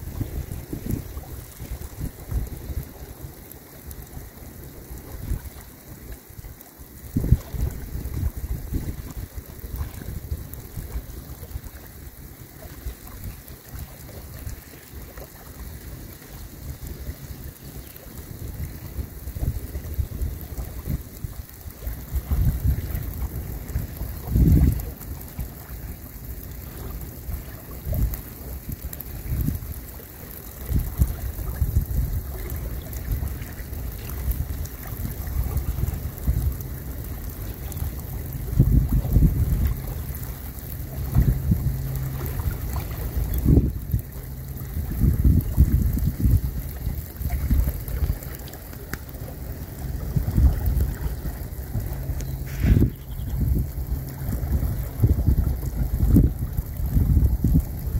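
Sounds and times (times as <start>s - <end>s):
rain falling on a river: 0.0s - 57.9s
wind buffeting microphone: 0.0s - 57.9s
drops ticking: 16.4s - 57.9s.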